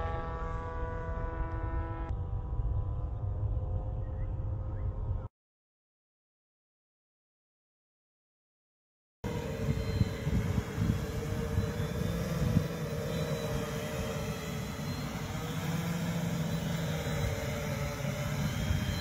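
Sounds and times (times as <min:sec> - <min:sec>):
low rumble: 0:00.0 - 0:05.3
electric motors whining: 0:09.3 - 0:19.0.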